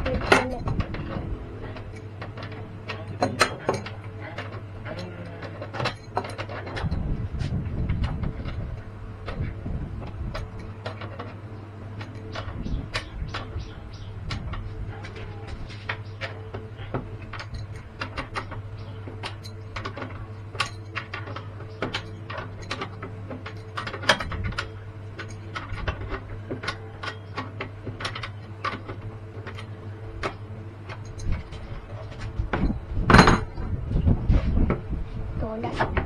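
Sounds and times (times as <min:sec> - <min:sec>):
small mechanical clicks and knocks: 0:00.0 - 0:33.8
steady low hum: 0:00.0 - 0:36.0.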